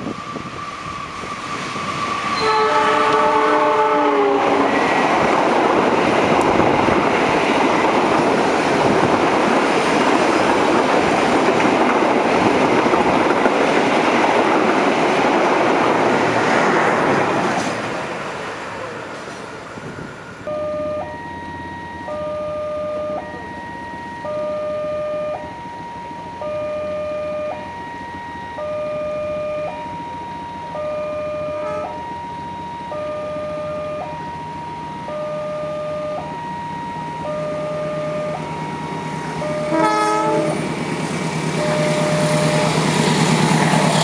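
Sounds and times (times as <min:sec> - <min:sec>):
train rumbling and clattering past: 0:00.0 - 0:22.2, 0:31.6 - 0:44.0
train chord horn: 0:02.3 - 0:05.0, 0:31.5 - 0:32.0, 0:39.4 - 0:40.7.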